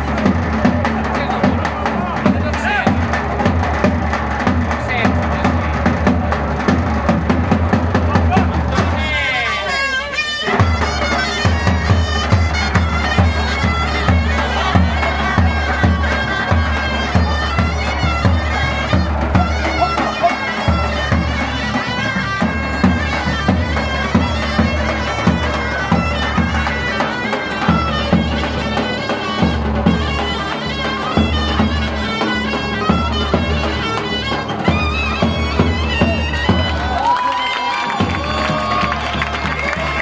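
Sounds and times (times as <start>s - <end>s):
bagpipe melody over drone: 9.0s - 37.0s.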